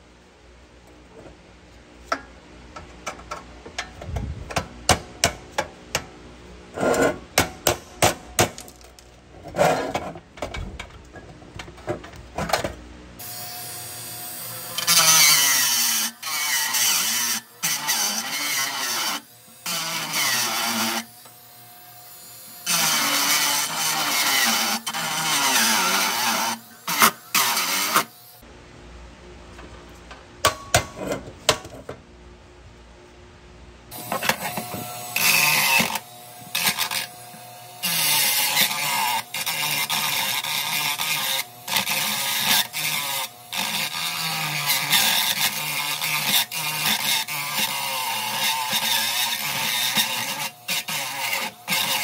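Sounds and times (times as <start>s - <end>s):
power tool working metal: 13.2s - 28.4s, 33.9s - 52.0s.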